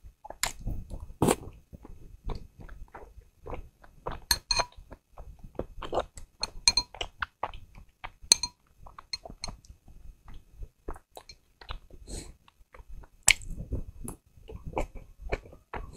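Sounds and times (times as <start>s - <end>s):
wet chewing: 0.2s - 15.9s
chopsticks clicking on glass bowl: 6.4s - 6.9s, 8.3s - 8.6s.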